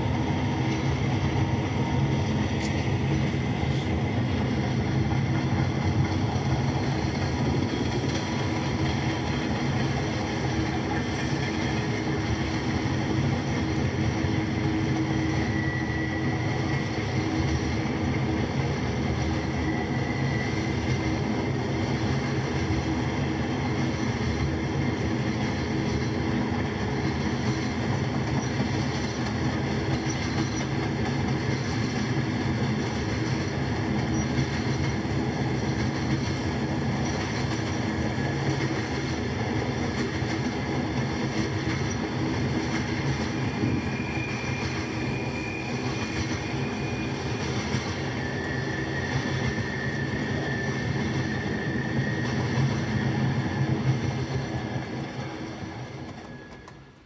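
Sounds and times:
freight train rumbling on rails: 0.0 - 57.0
faint high squeal: 14.4 - 17.8, 19.3 - 21.6, 43.0 - 54.2, 56.1 - 56.9.

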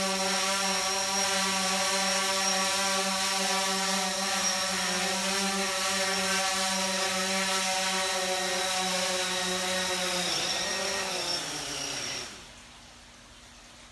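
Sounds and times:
drone propellers whining: 9.6 - 12.5.

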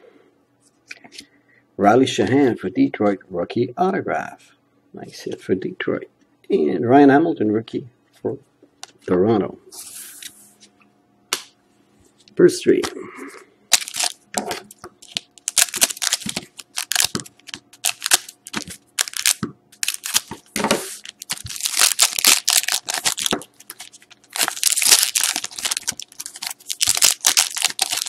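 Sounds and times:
foil wrapper crinkling: 13.7 - 28.0.

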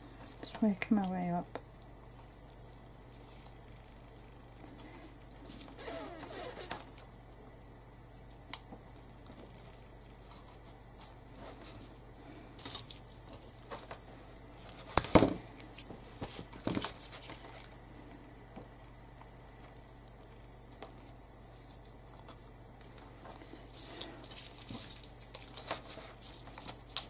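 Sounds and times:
paper flowers rustling and crinkling: 20.9 - 27.0.

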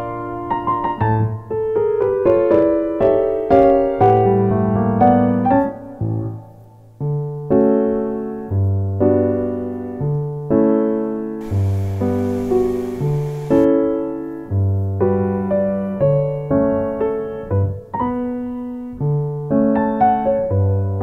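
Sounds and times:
piano music: 11.4 - 13.8.

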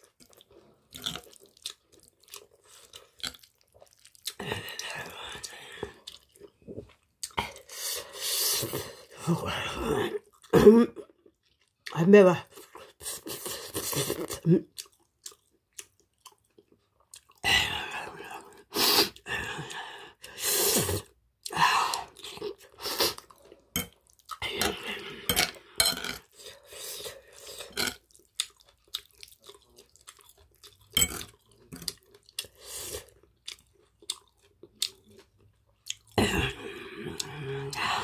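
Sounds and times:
wet crunchy chewing: 0.0 - 4.8, 26.3 - 36.2.

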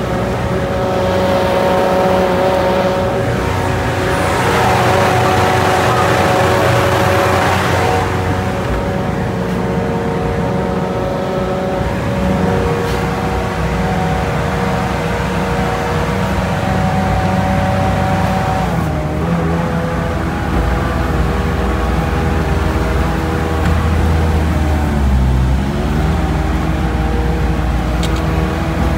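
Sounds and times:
diesel engine droning: 0.0 - 28.9
steady whining tones: 0.0 - 28.9.

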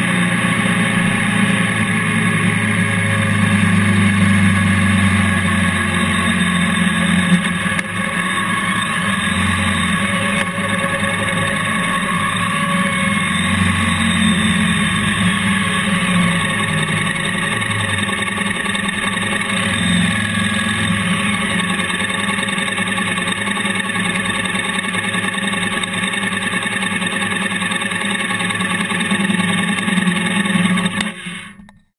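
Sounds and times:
motorcycle engine running slowly: 0.0 - 31.8.

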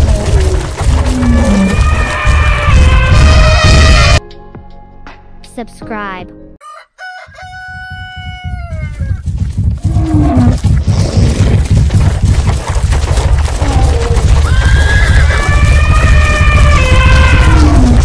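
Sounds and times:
pounding hooves stampede: 0.0 - 4.2, 7.4 - 18.0
rooster crowing: 6.6 - 9.2.

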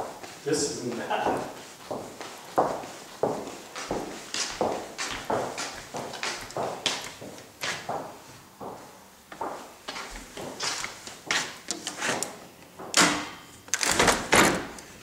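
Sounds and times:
sliding door scraping and rattling: 11.7 - 12.4.

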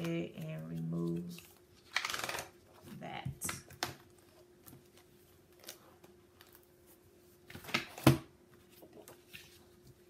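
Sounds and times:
paper pages rustling: 3.7 - 10.0.

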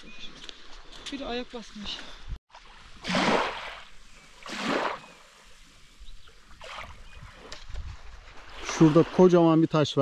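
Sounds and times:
paddle strokes through water: 1.7 - 9.3.

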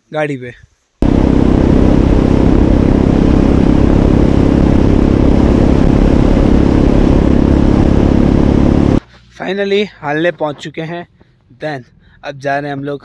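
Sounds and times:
motorcycle engine cruising: 1.0 - 9.0.

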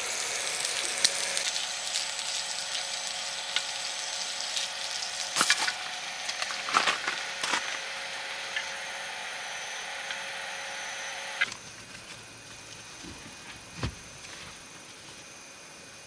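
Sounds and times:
steady hiss: 0.0 - 9.9
faint hum: 0.0 - 16.0.

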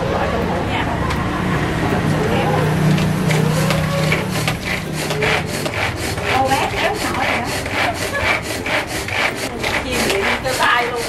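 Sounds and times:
pull cord food chopper whirring: 2.8 - 11.0.

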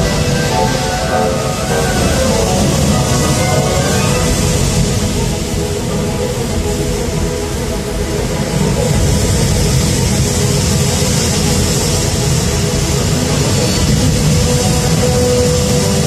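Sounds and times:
water jets rushing: 0.0 - 16.0.

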